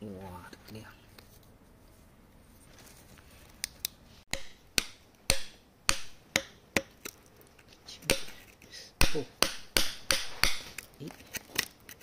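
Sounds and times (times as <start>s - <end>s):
metal tool striking rock: 4.3s - 7.0s, 8.1s - 8.4s, 9.0s - 10.7s.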